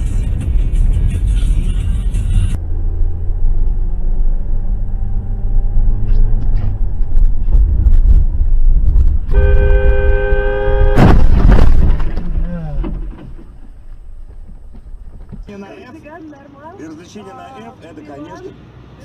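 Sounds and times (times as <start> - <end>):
car road and engine rumble: 0.0 - 19.0
car horn blast: 9.3 - 11.3.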